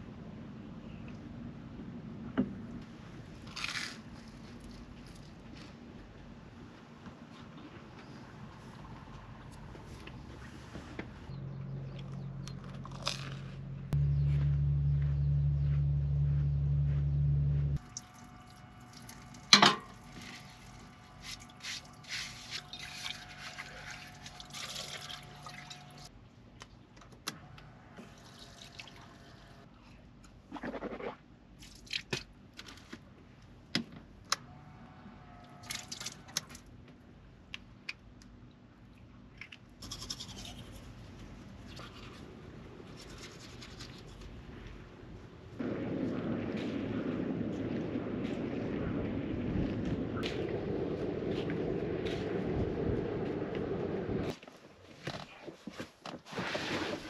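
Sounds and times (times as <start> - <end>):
low electric hum: 11.3 - 30.6.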